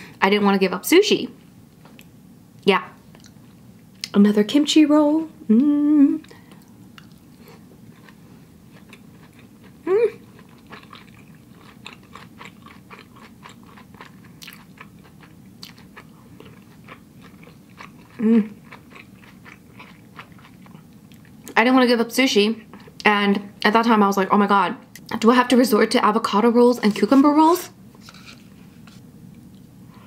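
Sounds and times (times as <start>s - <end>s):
person humming: 5.4s - 6.3s, 9.8s - 10.2s, 18.2s - 18.6s
wet chewing: 6.2s - 21.6s.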